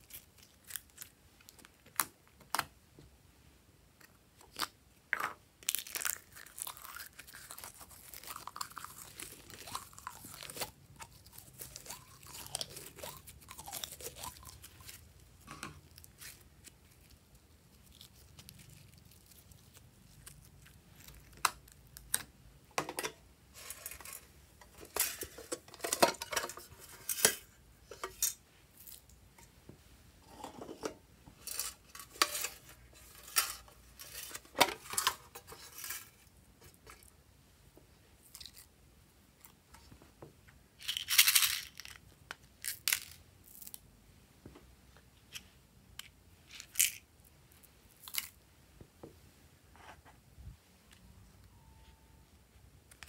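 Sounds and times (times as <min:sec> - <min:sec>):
slime squishing and crackling: 0:05.6 - 0:22.2.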